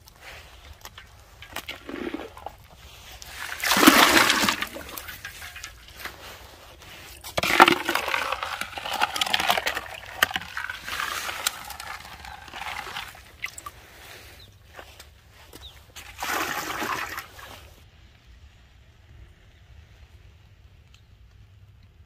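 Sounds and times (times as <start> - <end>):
water splashing and pouring: 0.2 - 15.0, 16.0 - 17.8.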